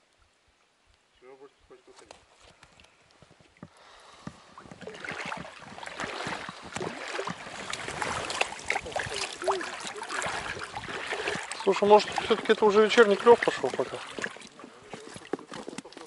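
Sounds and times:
water dripping: 2.6 - 16.0
river water splashing: 2.8 - 16.0.

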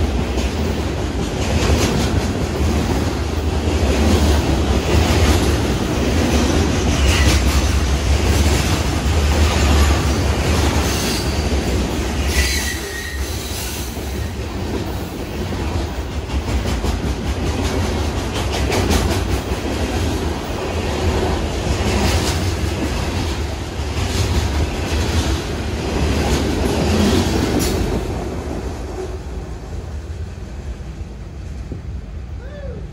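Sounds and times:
wheels clacking over rail joints: 0.0 - 12.9, 13.9 - 29.0
freight train cars rumbling: 0.0 - 32.9
high wheel squeal: 12.3 - 14.3.

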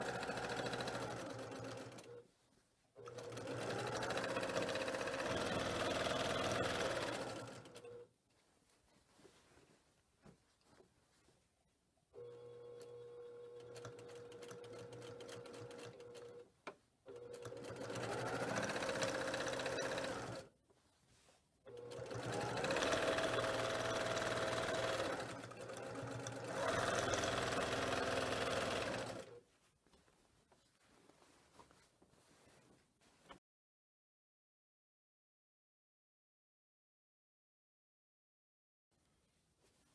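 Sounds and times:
sewing machine running: 0.0 - 2.2, 3.1 - 7.9, 13.4 - 16.4, 17.1 - 20.5, 21.7 - 29.3.

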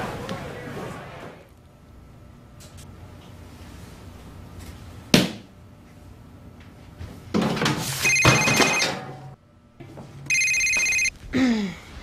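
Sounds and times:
telephone ringing: 8.0 - 9.1, 10.3 - 11.1.

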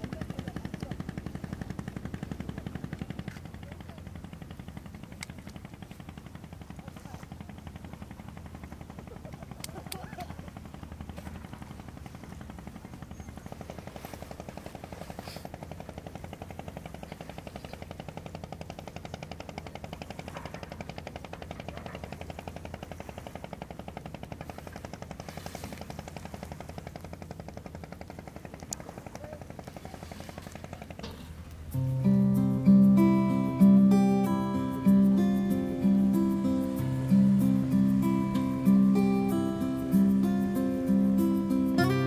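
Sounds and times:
engine puttering: 14.4 - 42.0
faint clicks: 28.5 - 29.8.

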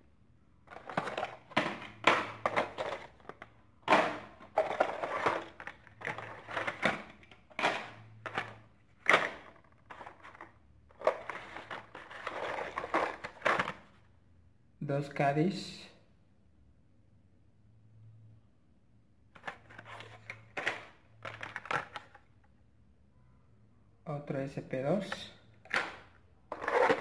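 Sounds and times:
plastic and cardboard crinkling: 0.7 - 13.9, 19.4 - 22.2, 25.0 - 27.0.

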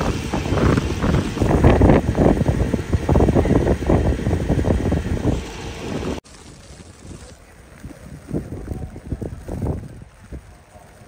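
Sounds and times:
city traffic: 0.0 - 6.3
street sound: 0.0 - 11.0
wind buffeting microphone: 0.0 - 11.0.

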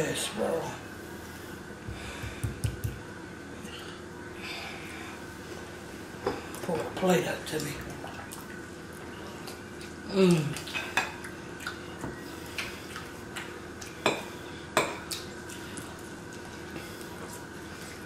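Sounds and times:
falling vocal hum: 10.0 - 10.6.

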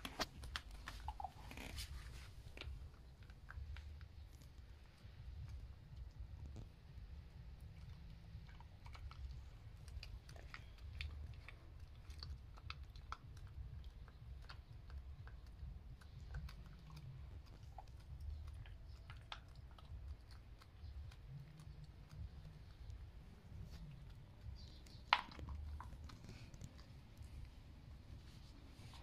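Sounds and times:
dog crunching on bone: 0.0 - 29.0.

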